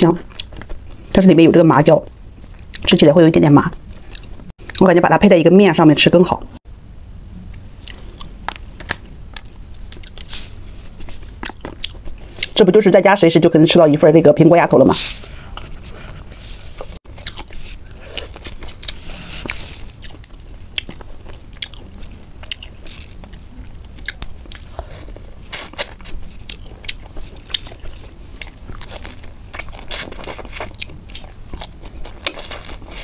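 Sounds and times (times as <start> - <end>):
crunchy chewing: 0.2 - 1.1, 3.8 - 4.9, 7.8 - 12.6, 15.1 - 33.0.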